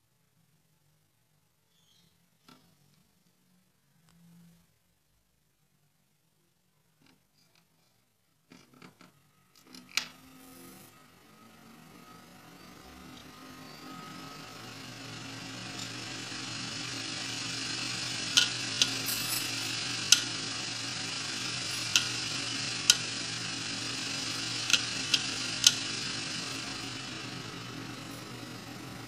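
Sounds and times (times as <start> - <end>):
hard disk platter whirring: 9.2 - 29.0
hard disk head clicking: 15.4 - 27.8.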